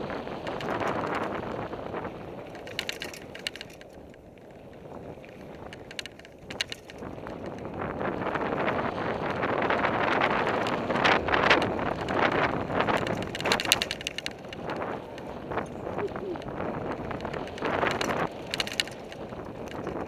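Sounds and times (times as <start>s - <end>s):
wind buffeting microphone: 0.0s - 20.0s
bike clattering rattles: 0.1s - 20.0s.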